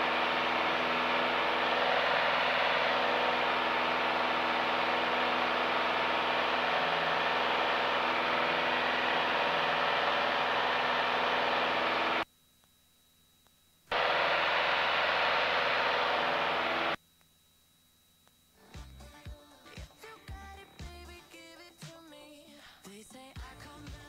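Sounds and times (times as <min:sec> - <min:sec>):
airplane engine and propeller: 0:00.0 - 0:12.2, 0:13.9 - 0:16.9.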